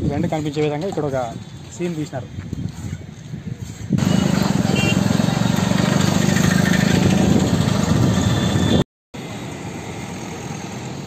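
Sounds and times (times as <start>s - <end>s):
street noise: 0.0s - 11.0s
passing traffic: 1.3s - 11.0s
small vehicle engine running: 4.0s - 8.8s.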